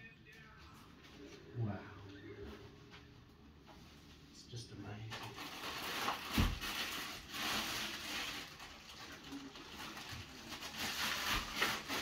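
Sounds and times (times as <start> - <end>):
plastic wrapping crinkling: 5.1 - 12.0.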